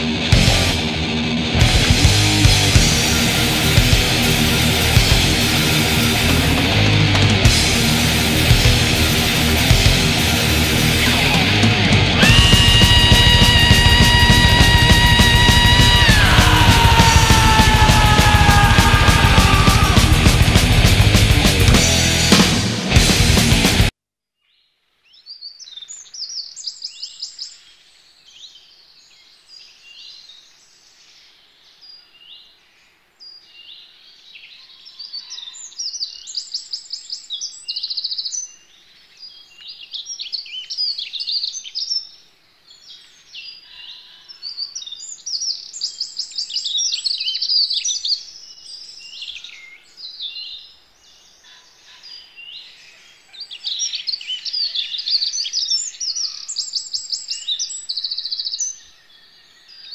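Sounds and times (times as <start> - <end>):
songbirds singing: 24.4 - 59.9.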